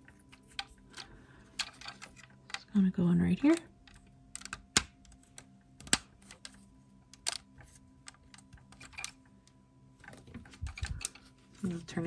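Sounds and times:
plastic pieces clicking together: 0:03.5 - 0:09.2.

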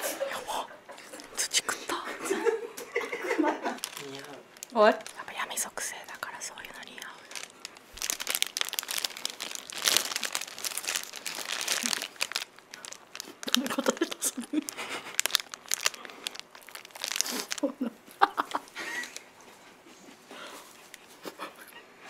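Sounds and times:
wrapper crinkling: 0:03.6 - 0:19.3
biting into chocolate: 0:08.1 - 0:17.7.

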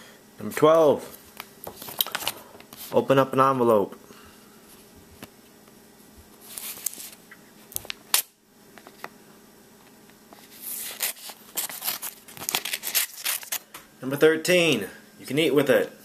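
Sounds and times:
paper rustling: 0:01.3 - 0:03.0, 0:06.4 - 0:08.0, 0:10.3 - 0:13.7
knife tearing through paper: 0:10.6 - 0:13.6.

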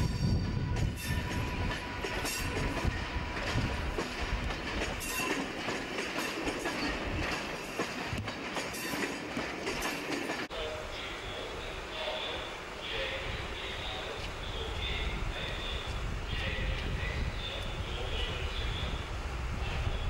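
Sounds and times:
low train rumble: 0:00.0 - 0:20.0
train wheels clicking over rail joints: 0:00.7 - 0:10.5.

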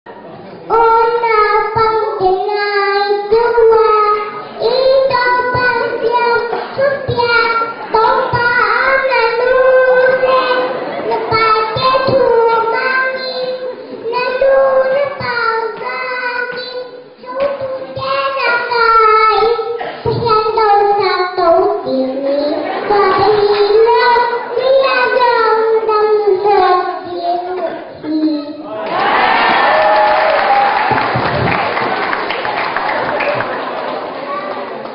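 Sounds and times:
girl singing into microphone: 0:00.7 - 0:28.6.

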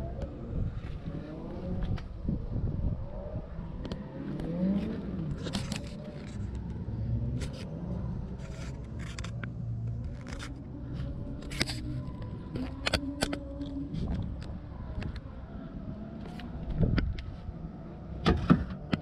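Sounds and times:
low rumble: 0:00.0 - 0:18.8
camera handling clicks and scrapes: 0:04.4 - 0:15.2.

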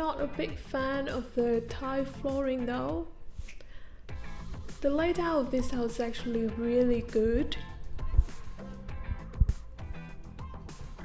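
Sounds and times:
background music with drums: 0:04.1 - 0:11.0.

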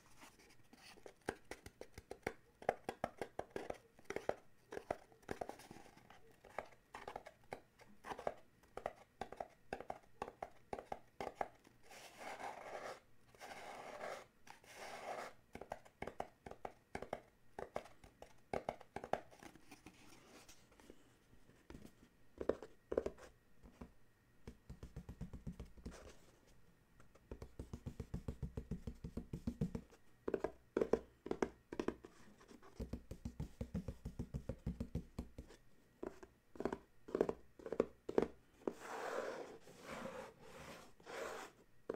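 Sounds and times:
fingers tapping on cardboard box: 0:23.8 - 0:26.1, 0:27.3 - 0:38.3.

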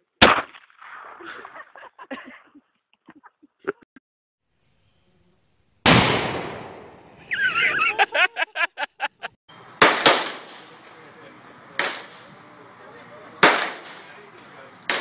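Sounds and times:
loud blast with rumble: 0:05.9 - 0:07.1
high wavering cry: 0:07.2 - 0:09.2.

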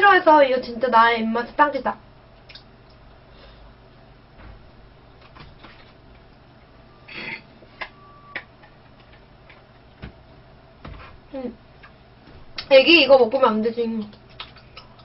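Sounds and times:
mouth clicks while chewing: 0:02.4 - 0:03.0, 0:14.0 - 0:15.0.

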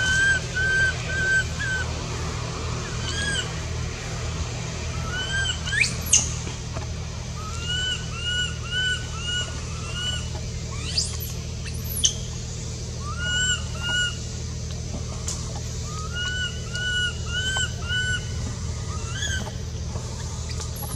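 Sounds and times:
steady low hum: 0:00.0 - 0:20.9
high-pitched arched calls: 0:02.8 - 0:03.6, 0:07.4 - 0:12.3, 0:13.0 - 0:14.3, 0:15.8 - 0:20.9.

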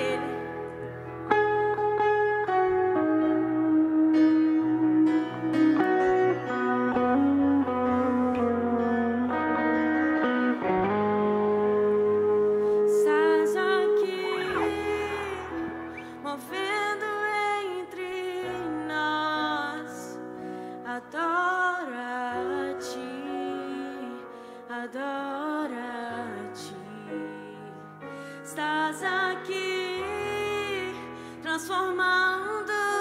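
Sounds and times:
woman singing worship song: 0:00.0 - 0:01.4, 0:12.7 - 0:33.0
band with keyboard: 0:00.0 - 0:33.0.

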